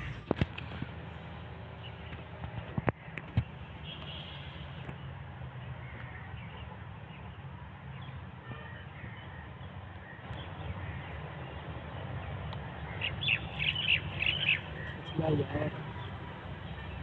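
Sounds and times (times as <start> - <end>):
small birds chirping: 1.7 - 17.0
sharp rapid bird calls: 12.6 - 17.0.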